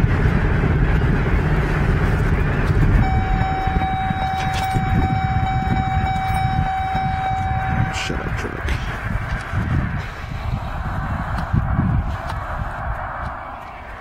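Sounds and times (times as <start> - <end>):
low rumble: 0.0 - 14.0
electronic buzzer tone: 3.0 - 8.0.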